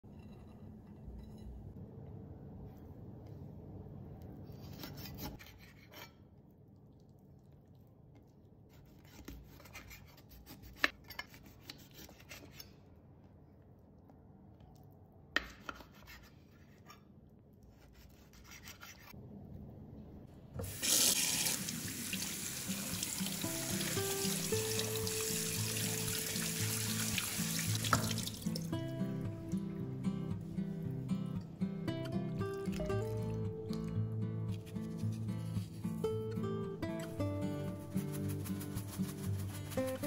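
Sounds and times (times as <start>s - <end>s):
knife scraping on cutting board: 4.5s - 6.2s, 8.8s - 12.8s, 17.7s - 19.2s
tap water running into sink: 20.6s - 28.7s.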